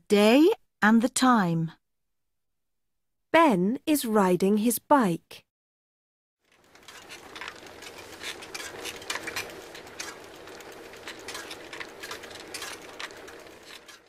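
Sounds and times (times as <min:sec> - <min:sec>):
irregular clicking and clinking: 0:06.5 - 0:14.0.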